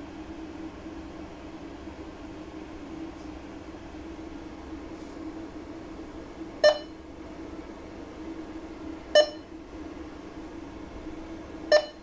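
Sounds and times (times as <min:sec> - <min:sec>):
steady low hum: 0:00.0 - 0:12.0
short electronic beeps: 0:06.6 - 0:06.9, 0:09.2 - 0:09.5, 0:11.7 - 0:12.0.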